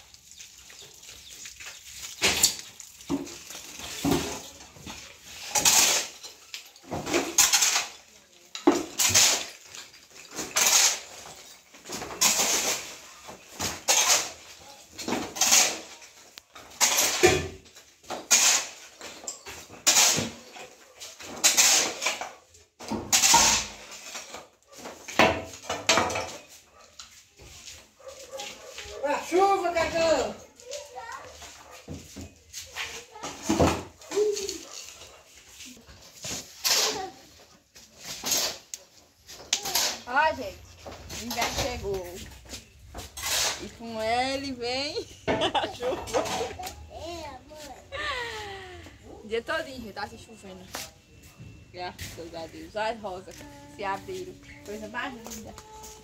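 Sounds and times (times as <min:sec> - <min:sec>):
tool scraping rubble off floor: 0:02.2 - 0:26.5, 0:35.7 - 0:44.2.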